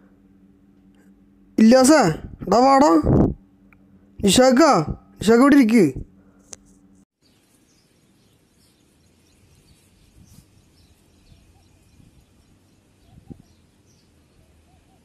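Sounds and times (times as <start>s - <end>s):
faint bird chirps: 7.2s - 15.0s.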